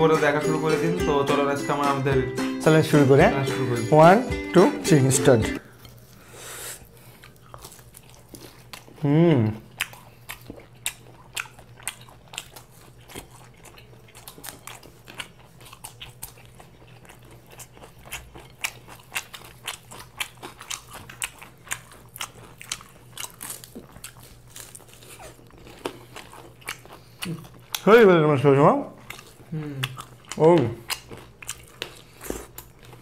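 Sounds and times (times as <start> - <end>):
crunching bites and chewing: 6.8 - 9.0, 9.6 - 27.9, 28.9 - 33.0.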